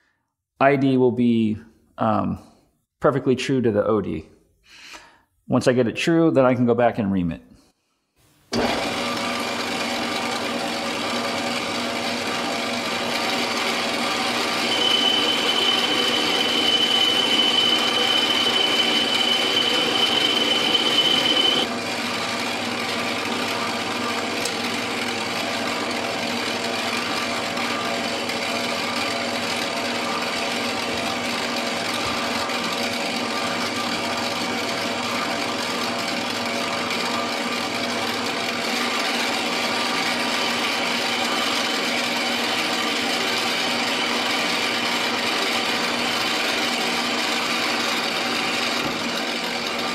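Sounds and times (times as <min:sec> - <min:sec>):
metal lathe running: 0:08.6 - 0:49.9
high steady whine: 0:14.6 - 0:21.7.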